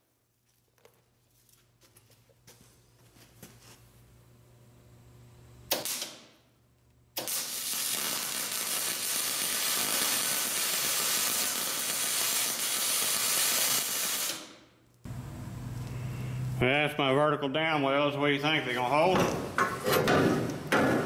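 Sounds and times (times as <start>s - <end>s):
welding arc strike: 5.7s - 6.3s, 7.2s - 14.6s
welding arc hissing: 7.2s - 16.6s.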